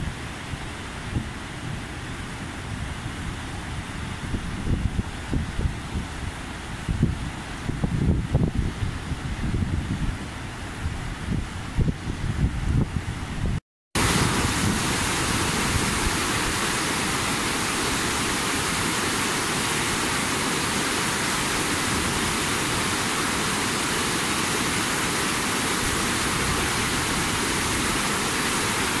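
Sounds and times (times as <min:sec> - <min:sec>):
wind buffeting microphone: 0:00.0 - 0:18.9
river rushing over rocks: 0:14.0 - 0:29.0.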